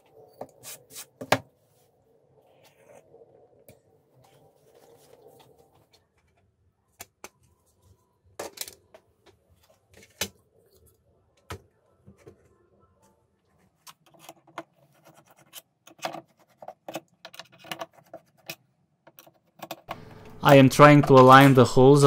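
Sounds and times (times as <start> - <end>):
plastic parts clicking and tapping: 13.8 - 20.0.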